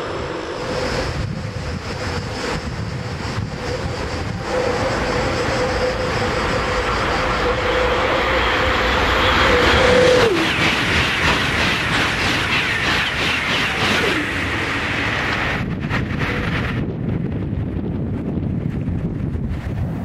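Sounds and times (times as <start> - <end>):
electric train whine passing: 0.0 - 20.0.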